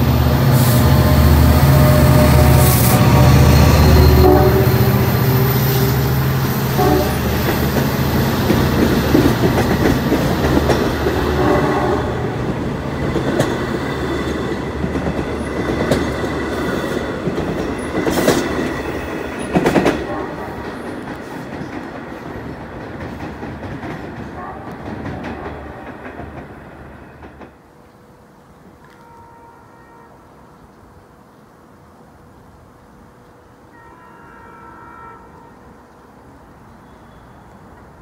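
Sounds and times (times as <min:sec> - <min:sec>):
diesel locomotive engine: 0:00.0 - 0:29.6
train wheels clacking over rail joints: 0:06.8 - 0:11.8, 0:12.5 - 0:27.6.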